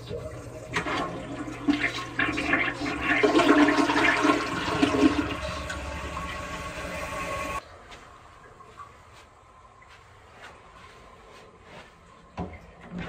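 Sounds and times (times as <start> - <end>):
toilet flushing: 0.0 - 7.6.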